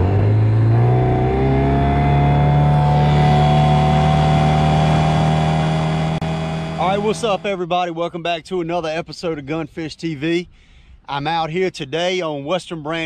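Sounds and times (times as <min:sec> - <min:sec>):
outboard motor running: 0:00.0 - 0:07.6.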